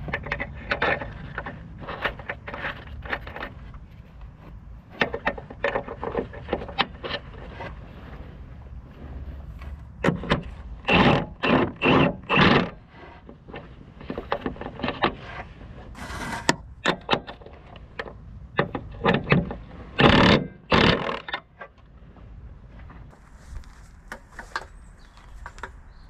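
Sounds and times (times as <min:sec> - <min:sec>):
socket wrench scraping and clanking: 0:00.0 - 0:08.3, 0:09.6 - 0:21.8.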